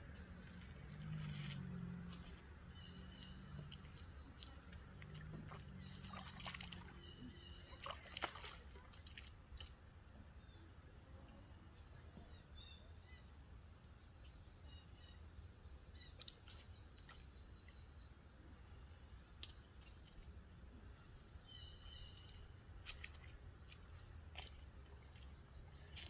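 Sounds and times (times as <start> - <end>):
faint low rumble: 0.0 - 8.5
birds chirping: 0.0 - 10.8, 11.6 - 26.0.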